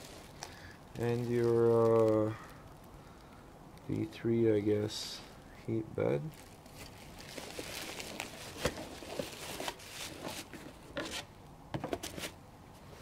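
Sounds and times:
bubble wrap and cardboard rustling: 0.0s - 2.9s, 6.1s - 12.4s.

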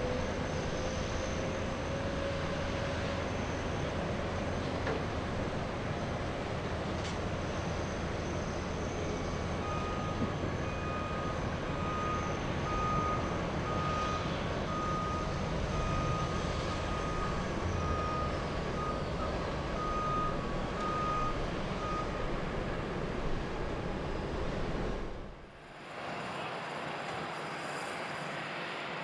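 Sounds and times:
low rumble of traffic: 0.0s - 28.9s
reversing alarm beeping: 9.0s - 22.4s.

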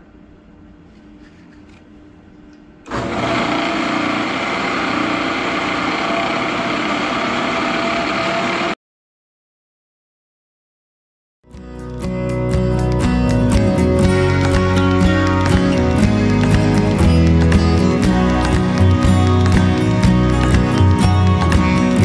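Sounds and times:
faint hum: 0.0s - 2.9s.

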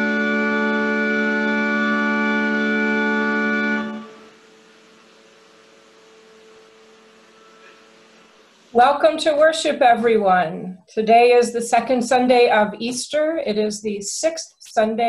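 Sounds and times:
organ chord: 0.0s - 8.8s
faint steady hum: 0.0s - 15.0s.

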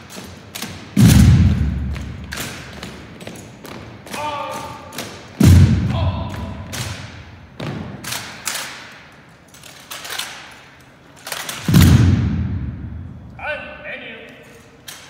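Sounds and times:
rifles striking in unison: 0.5s - 2.8s, 11.3s - 13.0s
heavy thuds: 1.0s - 3.0s, 5.4s - 8.0s, 11.7s - 13.4s.

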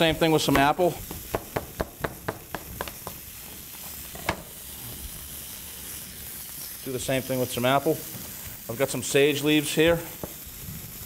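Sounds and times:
chicken sizzling in a pan: 0.0s - 11.0s
knock: 1.1s - 3.2s.

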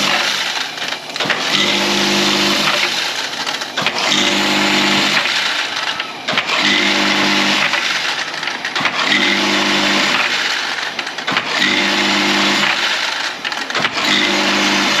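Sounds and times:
tablets rattling: 0.0s - 14.2s
machine hum: 0.0s - 15.0s.

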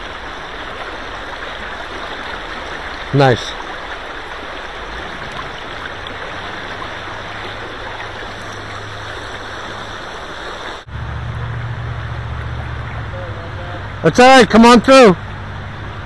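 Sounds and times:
river water rushing over rocks: 0.0s - 13.1s
deep steady rumble: 3.7s - 16.0s.

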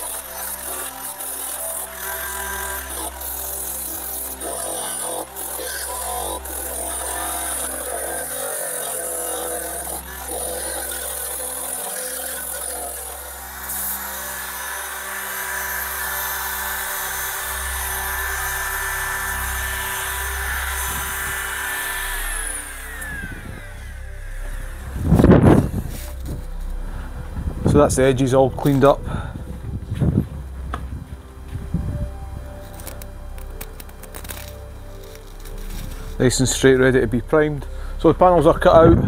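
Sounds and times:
belt sander grinding steel: 0.0s - 29.1s
background music: 0.0s - 39.0s.

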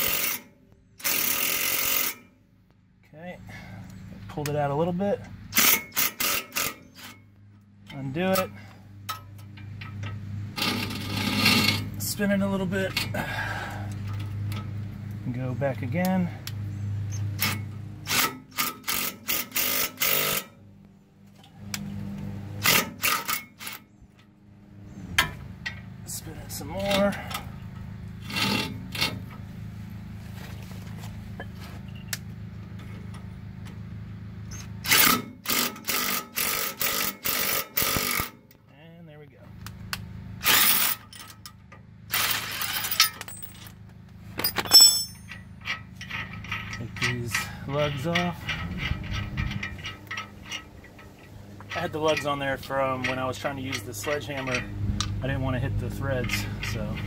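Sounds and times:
impact driver hammering bursts: 0.0s - 2.3s, 17.4s - 20.5s, 34.8s - 38.4s
metal nuts clinking: 40.5s - 43.8s, 44.4s - 55.2s, 55.9s - 57.0s.

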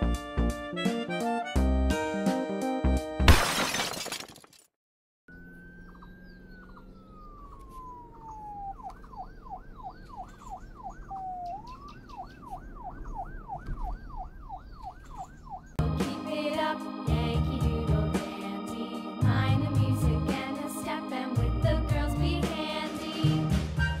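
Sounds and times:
electronic siren yelping: 5.3s - 15.8s.

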